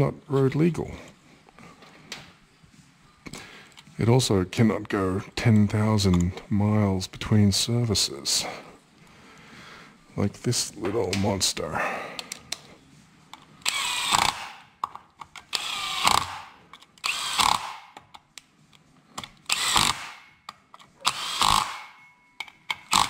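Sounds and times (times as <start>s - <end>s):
cordless drill running: 13.6s - 14.6s, 15.5s - 17.8s, 19.5s - 20.2s, 21.0s - 21.8s
socket and bolts clicking: 14.2s - 15.6s, 18.0s - 21.2s.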